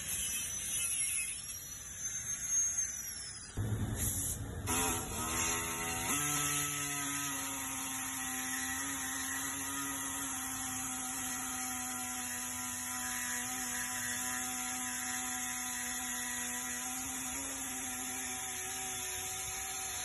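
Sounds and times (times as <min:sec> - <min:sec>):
steady machine hum: 0:03.5 - 0:06.4.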